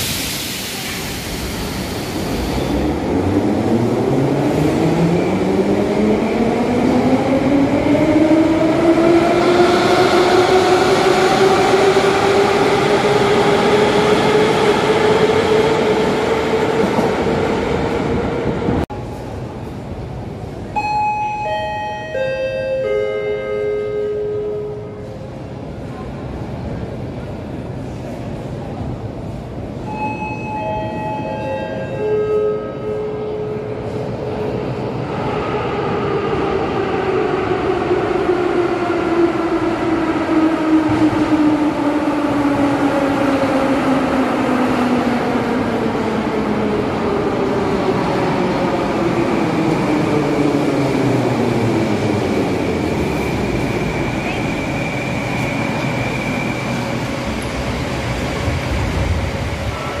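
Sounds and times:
high brake squeal: 0:54.0 - 0:57.0.

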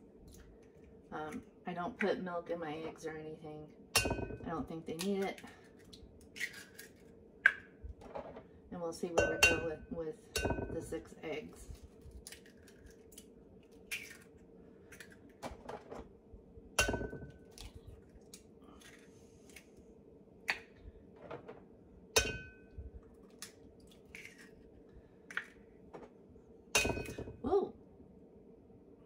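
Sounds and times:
faint steady hum: 0:00.0 - 0:29.0
eggs cracking on bowl rim: 0:05.0 - 0:07.7, 0:12.2 - 0:15.4, 0:23.2 - 0:24.6, 0:25.3 - 0:25.6.

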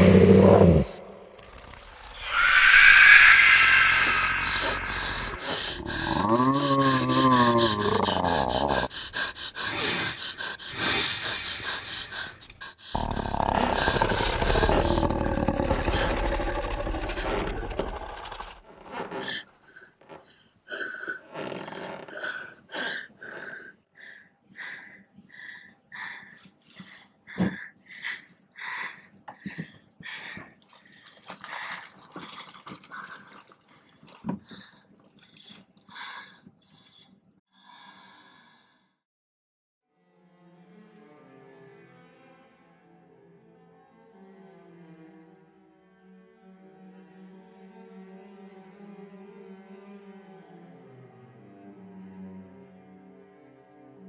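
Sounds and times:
deep growl: 0:00.0 - 0:10.2, 0:12.9 - 0:18.7
person whimpering: 0:03.4 - 0:18.4.

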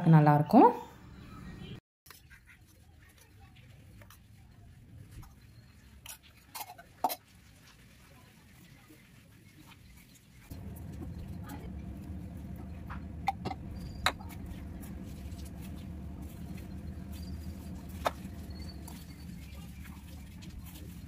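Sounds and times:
hands kneading dough in metal pan: 0:02.1 - 0:21.0
low hum: 0:10.5 - 0:21.0.

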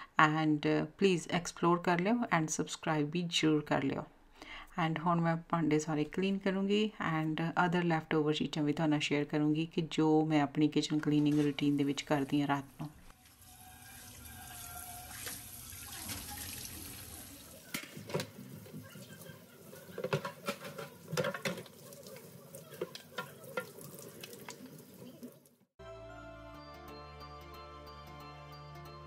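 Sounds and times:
tap water running into sink: 0:13.2 - 0:25.5
pans and utensils clinking: 0:17.7 - 0:24.1.

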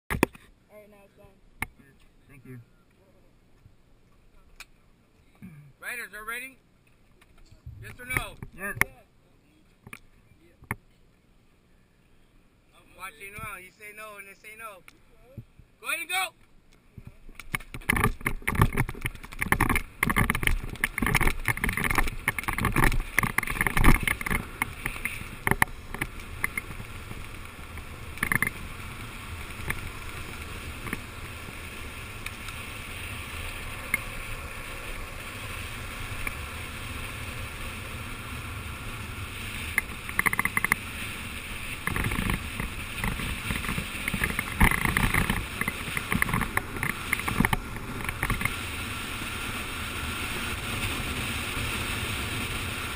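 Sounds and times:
longboard wheels rolling on asphalt: 0:16.5 - 0:52.9
wind rushing over microphone: 0:17.0 - 0:52.9.

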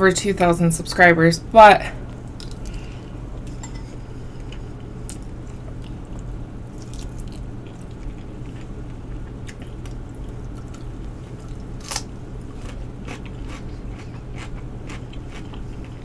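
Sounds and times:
steady low hum: 0:00.0 - 0:16.0
person chewing food: 0:04.4 - 0:16.0.

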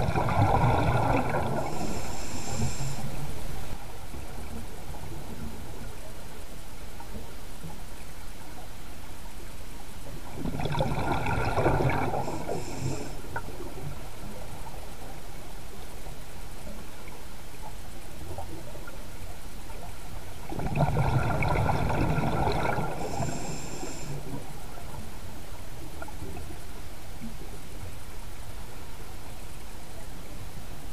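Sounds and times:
air bubbling underwater: 0:00.0 - 0:01.7, 0:20.5 - 0:23.0
steady underwater hiss: 0:00.0 - 0:30.9.

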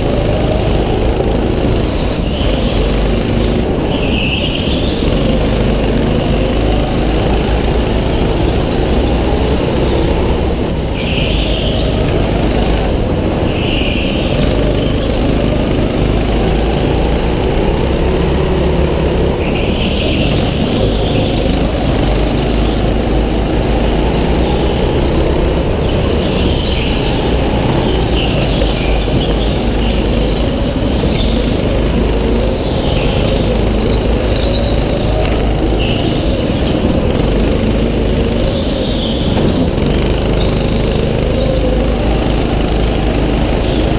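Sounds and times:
go-kart engine running: 0:00.0 - 0:43.9
tyre squeal: 0:00.0 - 0:43.9.

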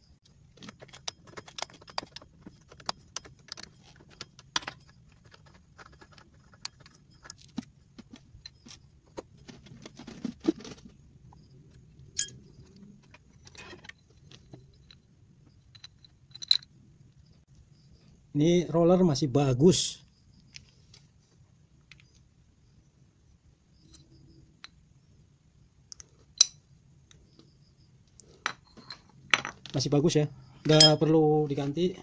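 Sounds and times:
metallic clicks and rattles: 0:00.5 - 0:08.8, 0:12.2 - 0:16.7.

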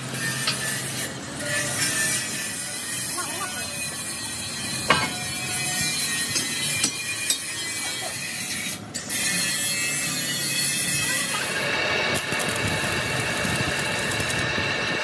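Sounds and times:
workshop hiss and hum: 0:00.0 - 0:15.0
metal clanks and knocks: 0:04.9 - 0:05.3.

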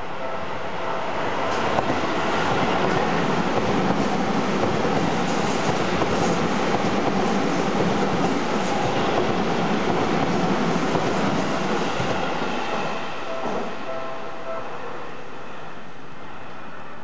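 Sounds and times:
train wheels clattering on rails: 0:01.5 - 0:13.7.

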